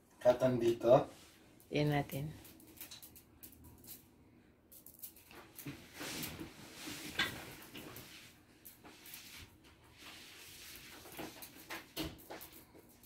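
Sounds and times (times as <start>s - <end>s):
kittens scampering on tiles: 4.8s - 13.0s.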